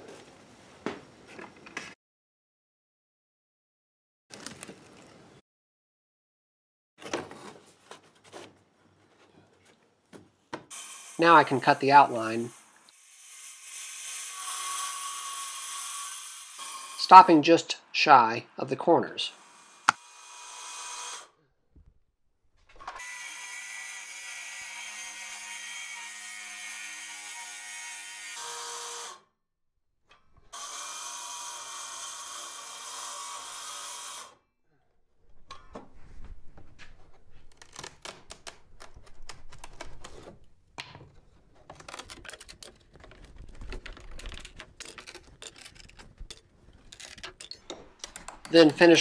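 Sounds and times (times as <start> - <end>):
circular saw cutting siding: 10.7 - 17.4, 19.3 - 21.4, 22.8 - 29.2, 30.5 - 34.4, 41.7 - 49.0
knocks and scraping of siding: 36.8 - 48.5.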